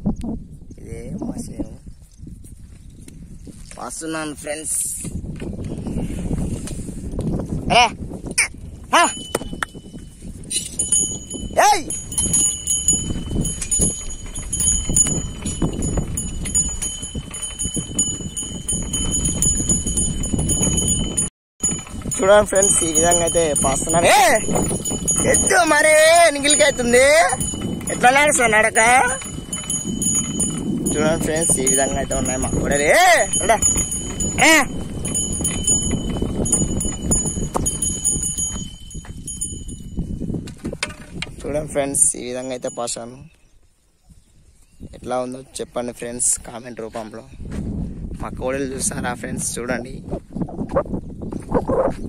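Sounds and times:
wind: 0:00.0 - 0:52.0
hoof steps: 0:08.7 - 0:41.4, 0:46.9 - 0:48.4
yoke and harrow clinking: 0:08.9 - 0:43.4
hooves treading: 0:09.0 - 0:41.4.

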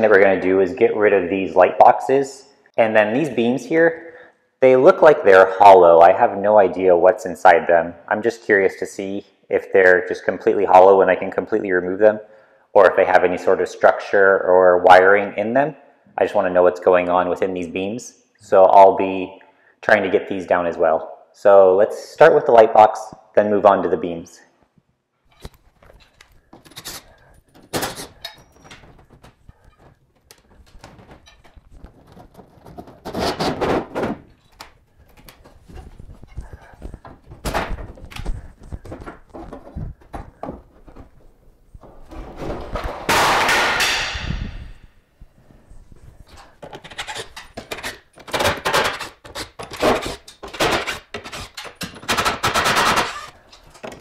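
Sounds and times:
knocks and thunks of prying: 0:25.4 - 0:41.2, 0:46.4 - 0:54.0
demolition knocks and bangs: 0:41.8 - 0:44.7.

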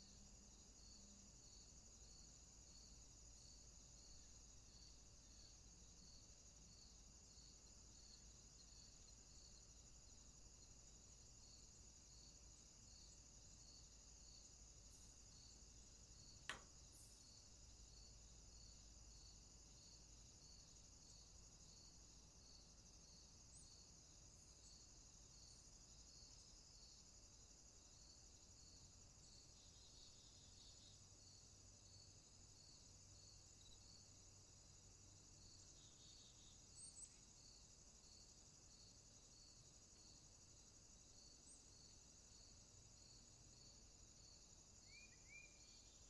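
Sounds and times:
insect chirping: 0:00.0 - 0:46.0
insect trill: 0:00.0 - 0:46.0.

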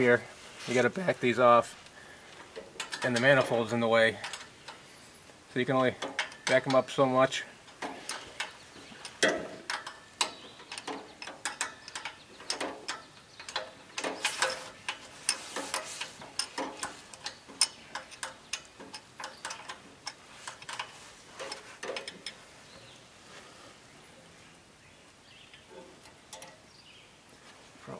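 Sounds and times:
wrench clicking on metal bolts: 0:02.6 - 0:04.8, 0:05.7 - 0:07.1, 0:07.7 - 0:22.4, 0:25.8 - 0:26.7.

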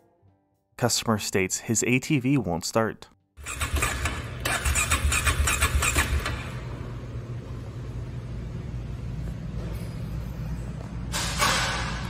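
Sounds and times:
engine cranking on starter: 0:03.4 - 0:06.7.

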